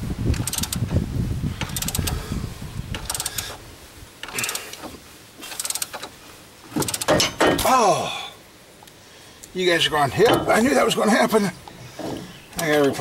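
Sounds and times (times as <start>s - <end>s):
ratchet clicking: 0.3s - 0.8s, 1.6s - 2.2s, 2.9s - 3.6s, 4.2s - 4.8s, 5.5s - 6.1s, 6.8s - 7.3s.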